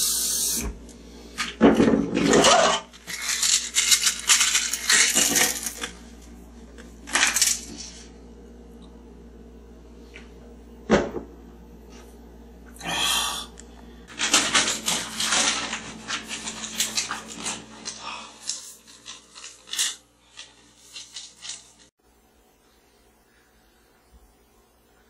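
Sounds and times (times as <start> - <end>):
paper sheets rustling: 14.1 - 21.9.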